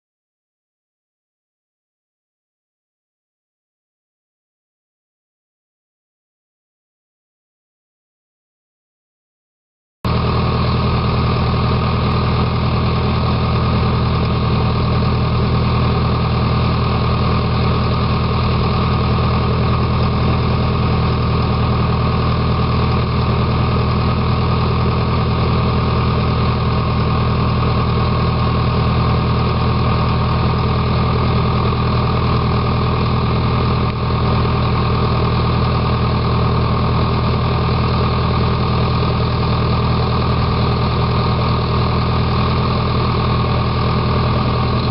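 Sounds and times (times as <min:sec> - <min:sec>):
heavy machinery engine idling: 0:10.1 - 0:44.9.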